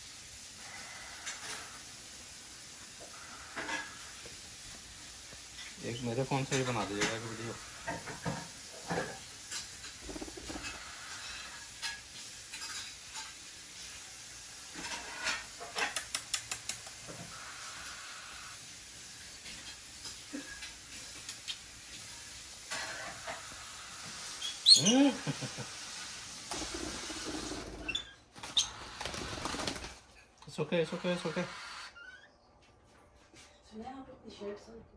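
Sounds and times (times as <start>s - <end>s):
parrot clicks: 15.8s - 17.0s
parrot squawk: 24.3s - 25.5s.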